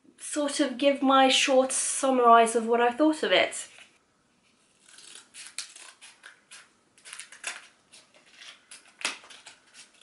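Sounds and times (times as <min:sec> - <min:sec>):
scissors snipping packaging: 0:04.8 - 0:10.0.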